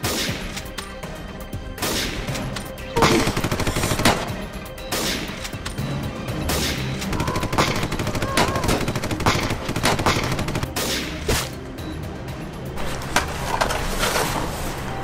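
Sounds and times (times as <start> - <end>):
background music: 0.0 - 15.0
gunshots: 1.8 - 5.6, 6.4 - 11.6.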